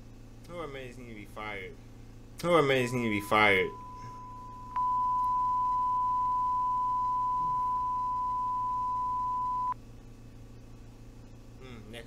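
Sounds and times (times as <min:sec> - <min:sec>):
high-pitched electronic tone: 0:02.6 - 0:09.8.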